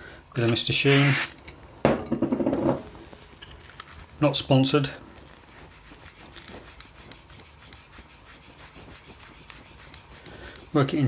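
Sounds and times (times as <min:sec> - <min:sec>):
cloth scrubbing back and forth: 0:04.2 - 0:11.0.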